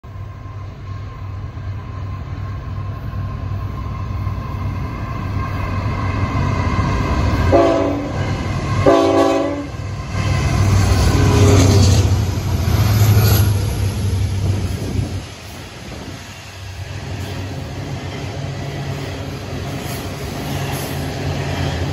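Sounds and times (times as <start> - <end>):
locomotive engine and wheels rumbling: 0.0 - 21.9
train horn blasts: 7.5 - 9.9.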